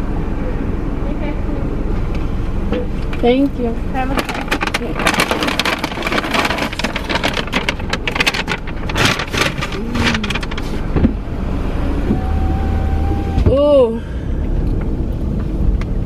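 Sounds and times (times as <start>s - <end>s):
paper bag rustling and crinkling: 4.0s - 11.0s.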